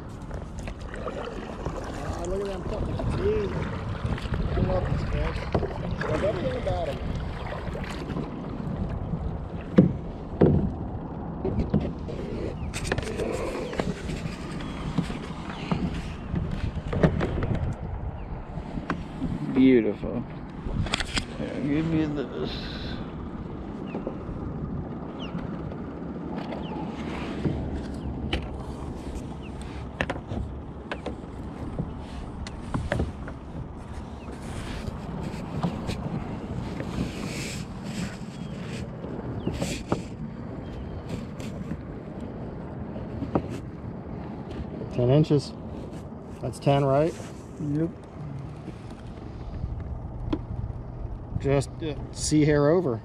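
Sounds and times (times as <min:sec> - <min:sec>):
water noise around kayak: 0:00.0 - 0:53.0
wind: 0:00.0 - 0:53.0
knocks on the boat: 0:09.7 - 0:10.8, 0:15.7 - 0:17.7
knocks and clicks of gear: 0:27.4 - 0:28.6, 0:29.9 - 0:33.4, 0:49.8 - 0:50.6.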